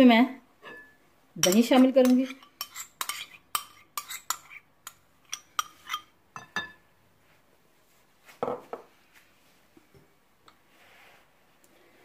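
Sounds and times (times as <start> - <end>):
metal spoon clinking on glass bowl: 0.6 - 6.8.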